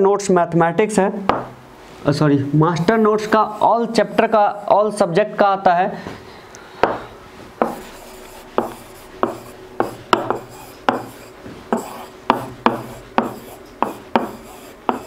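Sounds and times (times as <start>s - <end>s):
pen tapping and scraping on whiteboard: 7.6s - 15.0s.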